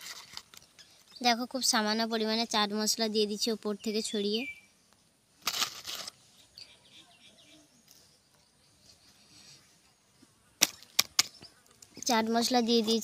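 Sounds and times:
faint bird chirps: 3.2 - 5.0, 6.2 - 12.7.

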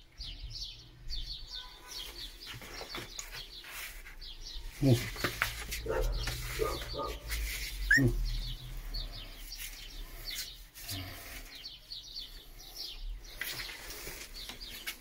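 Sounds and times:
puppies squeaking and whimpering: 7.7 - 8.6.

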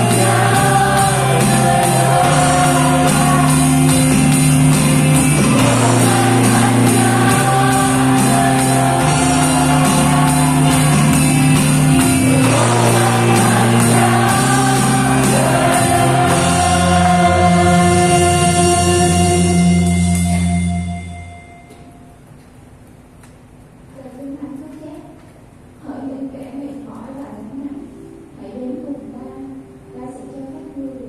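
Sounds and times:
electronic drum beat: 0.0 - 20.4
electric bass low notes: 0.0 - 21.5
keyboard chords: 0.0 - 22.4.

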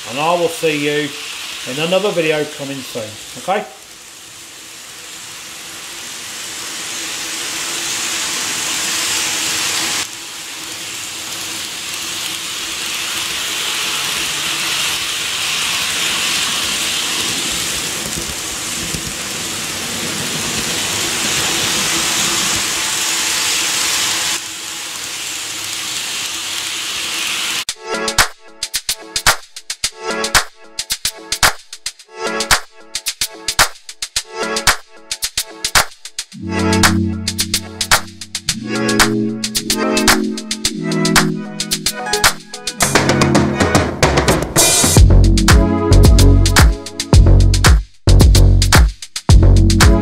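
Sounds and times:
model train running on track: 4.7 - 27.6.

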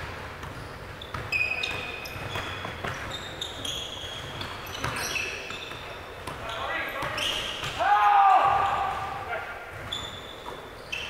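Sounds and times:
balls bouncing with thuds: 0.0 - 3.4
sneakers squeaking on gym floor: 0.0 - 11.0.

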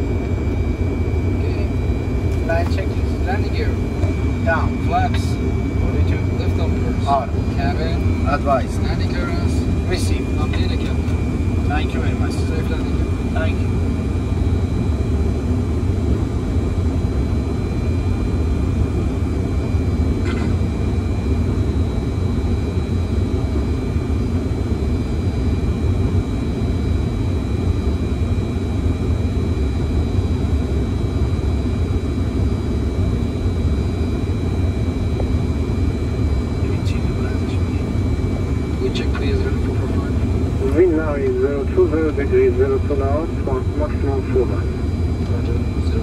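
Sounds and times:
low rumble of airflow and engines: 0.0 - 46.0.

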